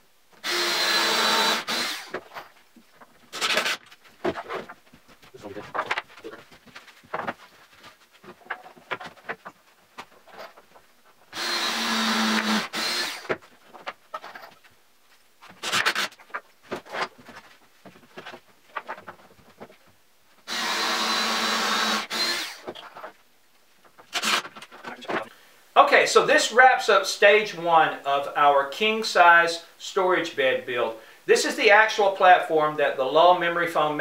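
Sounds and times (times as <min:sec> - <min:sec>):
cordless drill running into wood: 0:00.4 - 0:02.2, 0:11.3 - 0:13.3, 0:20.5 - 0:22.7, 0:24.1 - 0:24.4
boards knocking and clattering: 0:02.1 - 0:11.2, 0:15.4 - 0:20.0.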